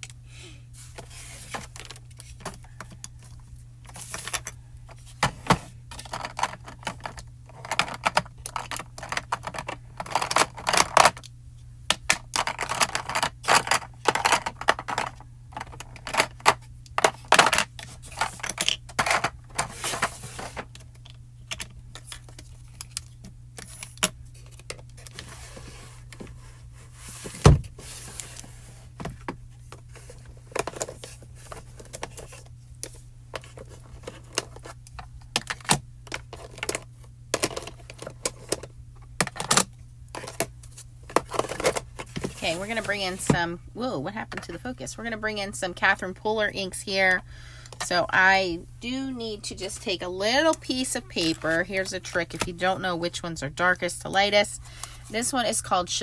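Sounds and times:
plastic cases clicking and rattling: 5.2 - 11.3, 11.9 - 25.2, 29.0 - 40.5, 41.1 - 42.4.

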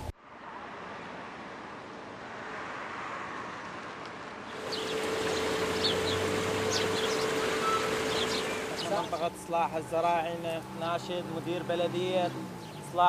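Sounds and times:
rush of street noise: 0.0 - 13.0
steady hum: 4.5 - 12.0
small birds chirping: 4.5 - 13.0.

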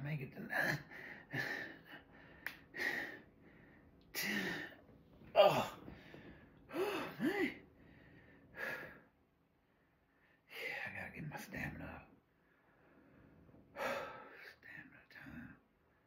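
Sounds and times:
man breathing hard: 0.9 - 4.8, 5.8 - 9.2
man grunting: 6.8 - 7.6.

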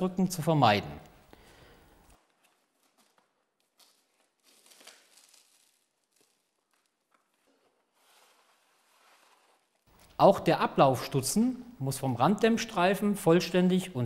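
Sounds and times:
plastic film crinkling: 2.0 - 10.2.

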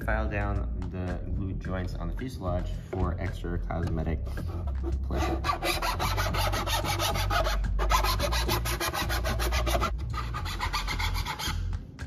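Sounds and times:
metal file rasping on plastic: 4.3 - 11.7.

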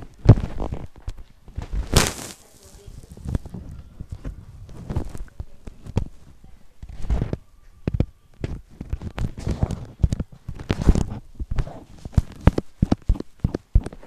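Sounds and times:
fingers tapping on tablet: 11.4 - 14.0.

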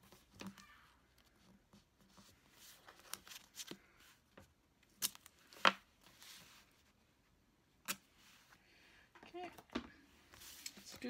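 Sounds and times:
tape being unrolled: 4.8 - 5.8
paper rustling and scraping: 5.1 - 6.9.

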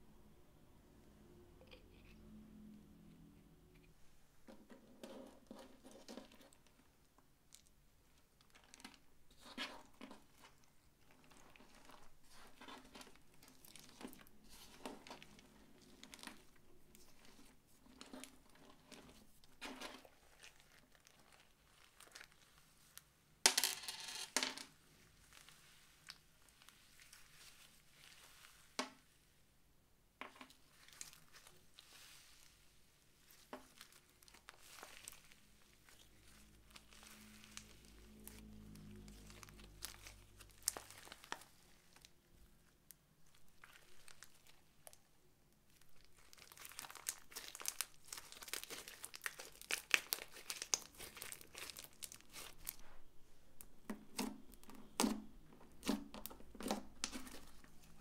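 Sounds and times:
slime squishing and crackling: 5.5 - 22.7, 30.5 - 58.0.

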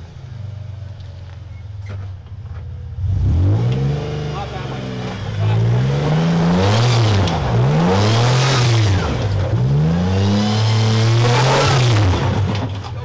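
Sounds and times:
pickup truck engine revving: 2.9 - 13.0.

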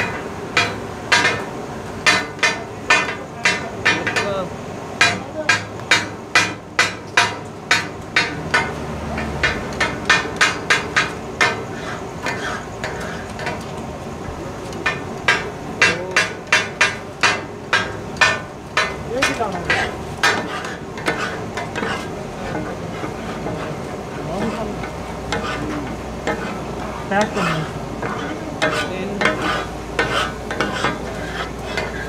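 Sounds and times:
metal spatulas chopping on griddle: 0.0 - 13.8, 14.6 - 32.0.

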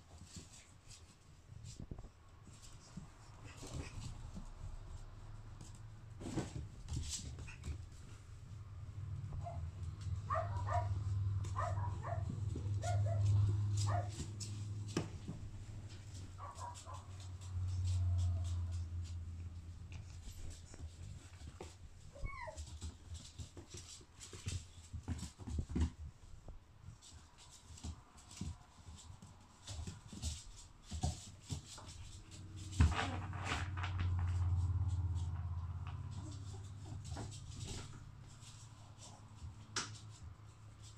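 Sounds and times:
puppies scrabbling on wooden floor: 0.0 - 40.9
puppies yipping and whimpering: 22.1 - 22.6.

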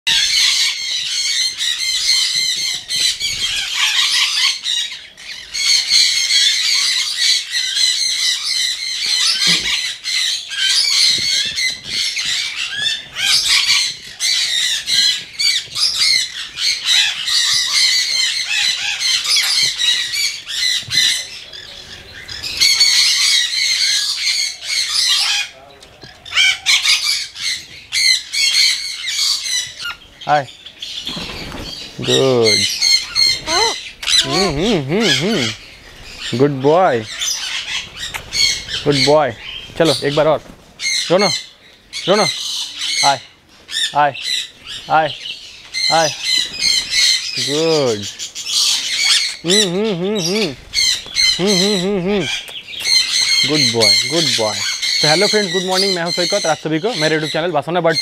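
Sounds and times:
parrots squawking: 0.1 - 25.6, 26.2 - 58.0.

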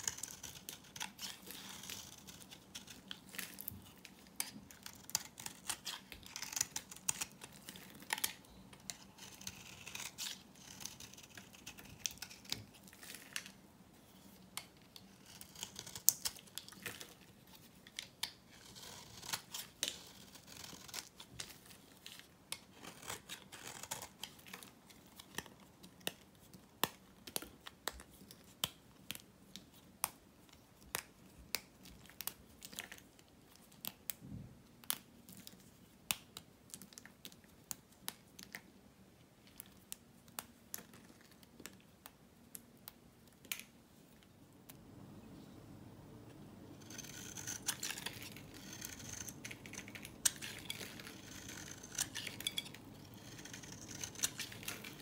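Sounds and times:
knife scraping dry soap: 0.0 - 13.5, 15.0 - 21.6, 46.8 - 55.0.

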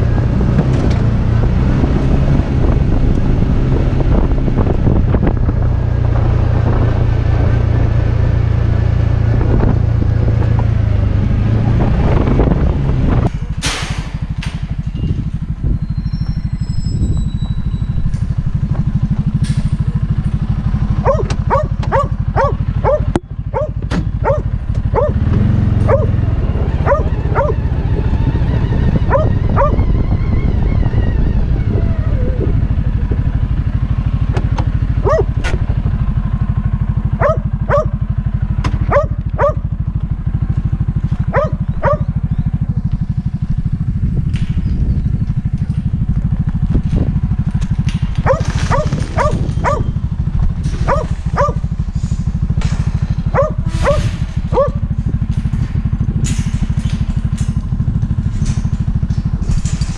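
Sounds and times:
engine running low: 0.0 - 59.9
dog barking: 21.0 - 25.3, 25.9 - 26.2, 26.8 - 27.6, 29.1 - 29.8, 35.0 - 35.3, 37.2 - 38.0, 38.9 - 39.6, 41.3 - 42.1, 48.2 - 49.9, 50.8 - 51.7, 53.3 - 54.8.

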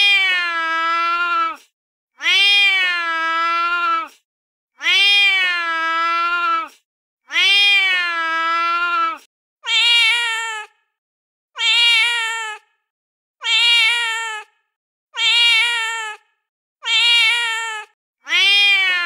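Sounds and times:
recorded cat meow: 0.0 - 4.2, 4.8 - 10.7, 11.6 - 12.6, 13.4 - 14.5, 15.2 - 16.2, 16.8 - 19.0.

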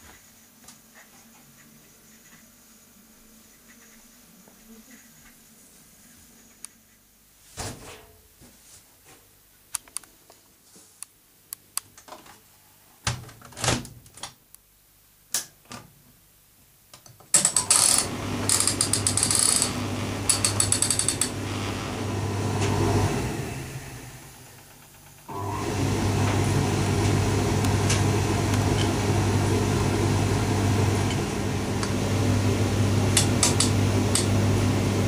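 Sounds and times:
dryer control clicks: 17.0 - 21.4, 27.0 - 29.0, 33.1 - 34.4
dryer drum turning: 17.3 - 35.0
dryer motor hum: 17.4 - 35.0
fast clicking: 18.5 - 21.4.

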